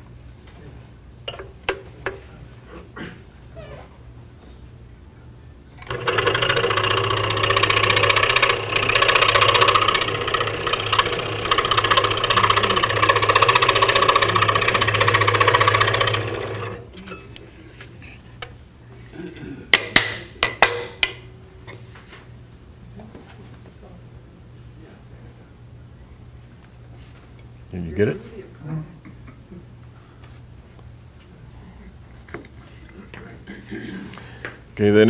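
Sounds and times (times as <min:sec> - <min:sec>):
scroll saw cutting wood: 0:05.8 - 0:16.9.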